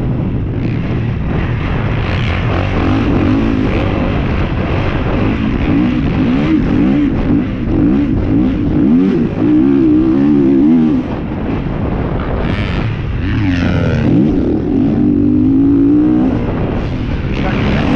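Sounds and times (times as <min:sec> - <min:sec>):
motorcycle engine revving: 0:00.0 - 0:17.9
wind noise: 0:00.0 - 0:17.9.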